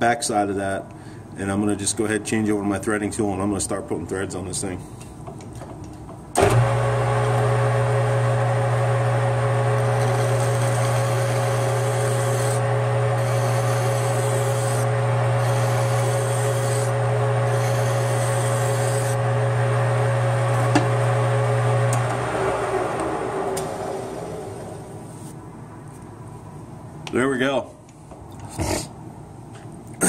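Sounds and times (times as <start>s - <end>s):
lathe motor hum: 6.4s - 25.3s
file rasping on metal: 13.2s - 14.8s, 15.4s - 19.2s.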